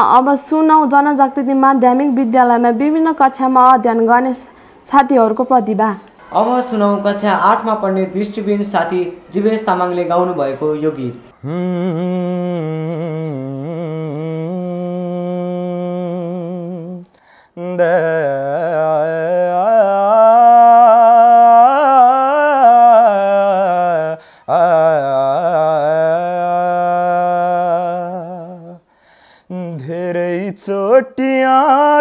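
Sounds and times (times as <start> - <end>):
boy singing wordless phrases: 0.0 - 28.8, 29.5 - 32.0.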